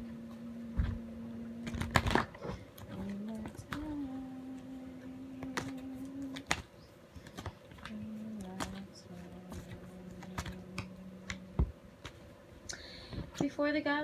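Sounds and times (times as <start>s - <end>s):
low held tone: 0.0s - 2.2s
cards being shuffled: 1.6s - 12.3s.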